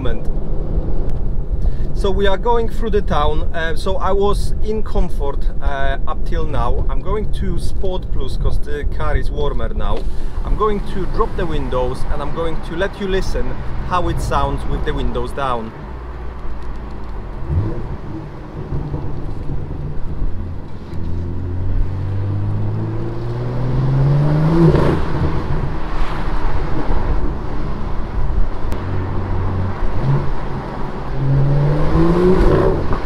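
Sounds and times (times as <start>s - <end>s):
car engine accelerating: 10.3s - 33.0s.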